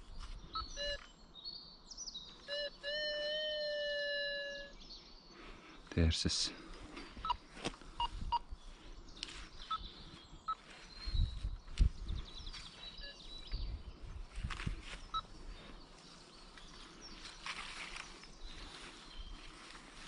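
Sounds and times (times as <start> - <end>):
birds chirping: 0.0 - 20.0
metal detector beeps: 0.5 - 1.2, 2.4 - 4.8, 12.5 - 13.5.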